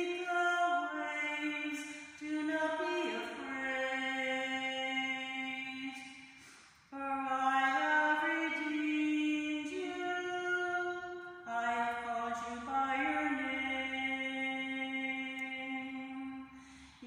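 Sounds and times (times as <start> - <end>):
woman singing a hymn: 0.0 - 6.1, 6.9 - 17.0
woman breathing: 6.2 - 6.9, 16.5 - 17.0.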